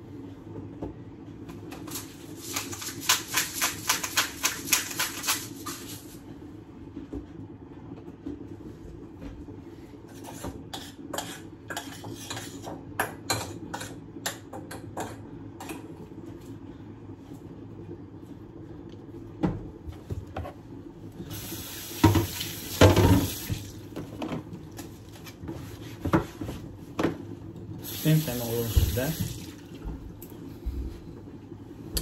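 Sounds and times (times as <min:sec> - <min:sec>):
steady low hum: 0:00.0 - 0:32.0
tap running: 0:22.0 - 0:24.4, 0:28.6 - 0:30.2.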